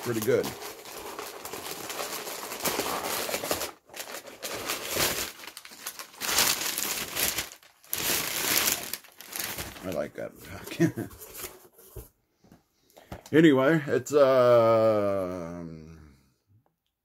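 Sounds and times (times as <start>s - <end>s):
packing paper crinkling: 0.0s - 11.6s.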